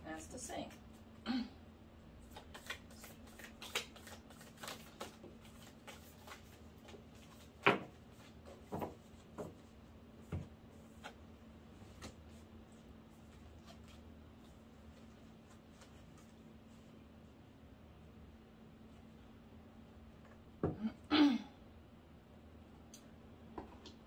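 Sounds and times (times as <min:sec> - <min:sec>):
cards being shuffled: 0:02.2 - 0:09.0.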